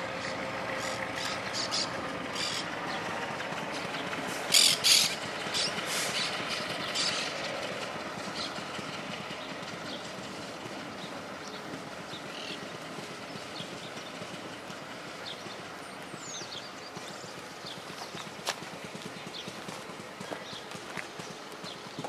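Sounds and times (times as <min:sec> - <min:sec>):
diesel locomotive engine running: 0:00.0 - 0:22.0.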